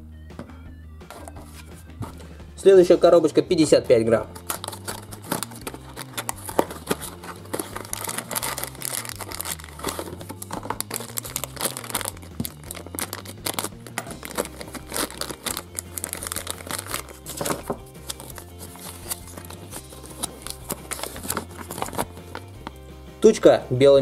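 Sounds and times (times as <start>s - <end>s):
quiet background music: 0.0s - 24.0s
plastic packaging crinkling: 4.3s - 22.7s.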